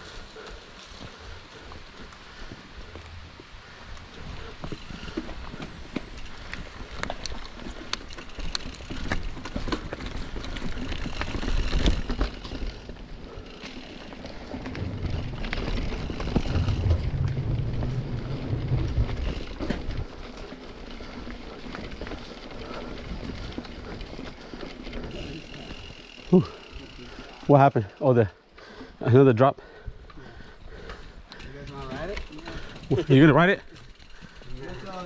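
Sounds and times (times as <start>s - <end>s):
bike tyres crunching on trail: 0.0s - 35.0s
bike clicks and knocks: 4.1s - 27.0s
low rumble: 14.6s - 20.2s.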